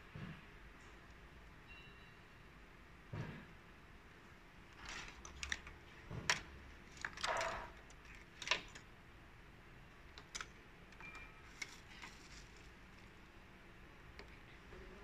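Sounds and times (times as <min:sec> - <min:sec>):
hands handling wiring and parts: 0:04.7 - 0:09.0, 0:10.0 - 0:13.3.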